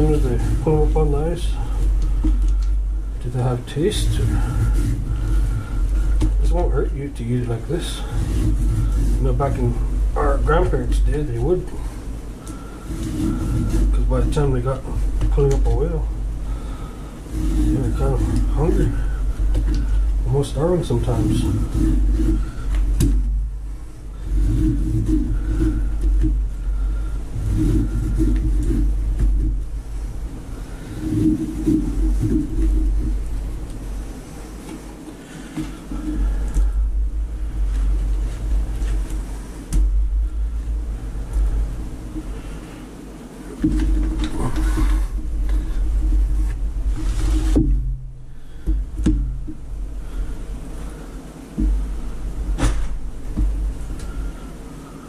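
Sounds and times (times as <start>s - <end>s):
rustling: 0.0s - 55.0s
steady low hum: 0.0s - 55.0s
knife sawing through blubber: 3.3s - 11.8s, 12.5s - 23.3s, 24.0s - 29.7s
knocks and thuds on cardboard: 21.6s - 23.4s, 47.1s - 49.6s, 51.6s - 53.6s.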